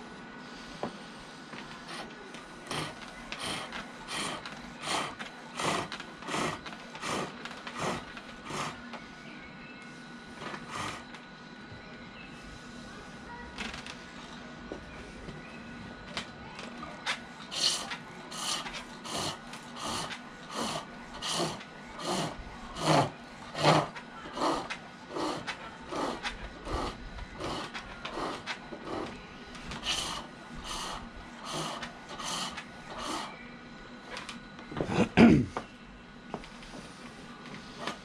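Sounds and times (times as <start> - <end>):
lathe tool scraping wood: 1.9 - 8.8.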